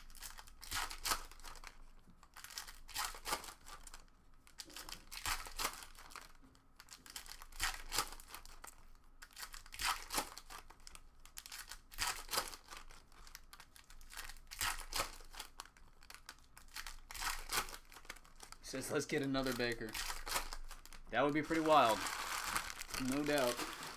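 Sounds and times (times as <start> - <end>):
foil wrappers tearing and crinkling: 0.0 - 23.9.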